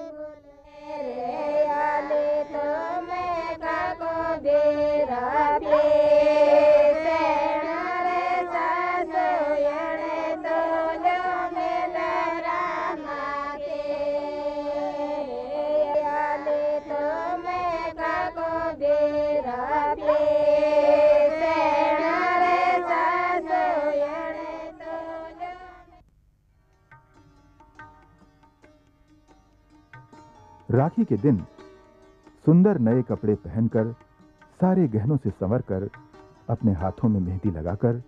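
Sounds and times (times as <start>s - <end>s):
women and girls singing in unison: 0.0s - 26.0s.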